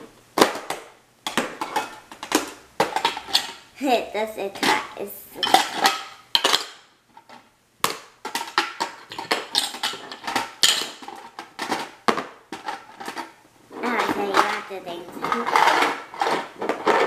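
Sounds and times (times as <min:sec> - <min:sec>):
plastic toy pieces clattering: 0:08.2 - 0:17.0.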